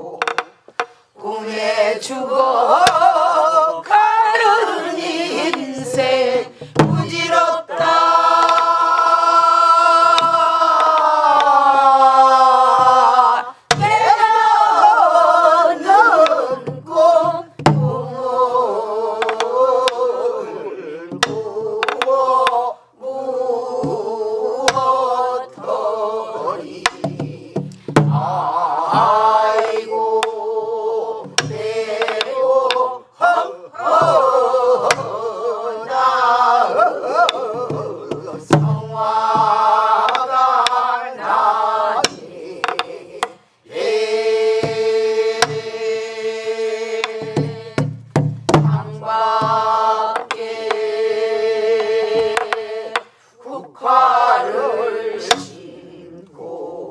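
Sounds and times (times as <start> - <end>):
group singing folk song in unison: 0.0 - 56.9
barrel drum strokes: 5.5 - 9.0, 13.7 - 15.0, 26.8 - 30.3, 44.6 - 45.8, 47.0 - 50.8.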